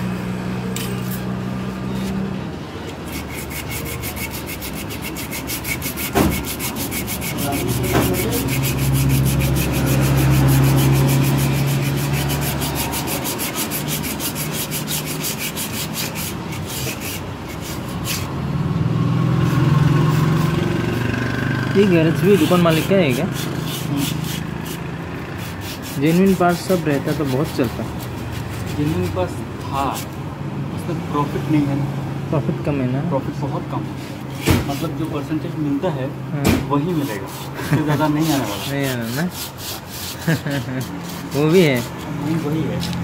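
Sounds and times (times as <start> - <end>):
hand rubbing brake shoes: 2.8 - 18.4, 19.4 - 30.2, 33.8 - 35.3, 36.6 - 43.0
sharp knocks: 6.0 - 6.6, 34.4 - 34.8.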